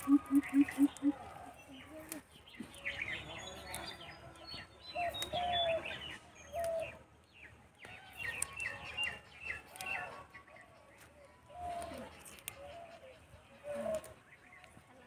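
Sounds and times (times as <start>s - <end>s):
birds calling: 0.0s - 4.1s, 4.8s - 7.5s.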